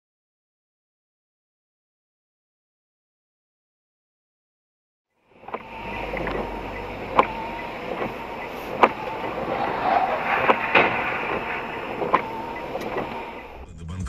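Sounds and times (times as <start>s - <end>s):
tyre noise on wet road: 5.3s - 13.6s
windscreen wiper clicks: 5.3s - 13.6s.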